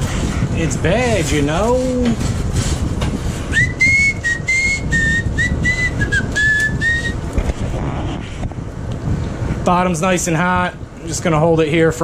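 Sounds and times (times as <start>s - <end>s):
person whistling a tune: 3.5s - 7.2s.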